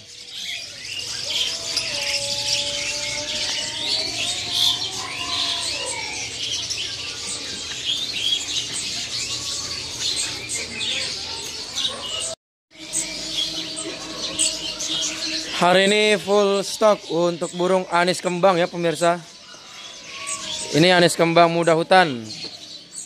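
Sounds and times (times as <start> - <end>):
songbirds chirping: 0.0 - 23.0.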